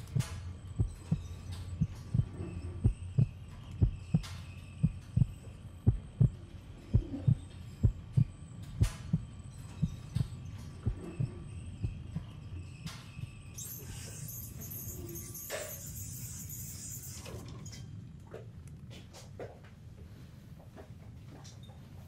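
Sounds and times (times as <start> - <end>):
steady low hum: 0.0 - 22.0
heartbeat thumps: 0.1 - 12.3.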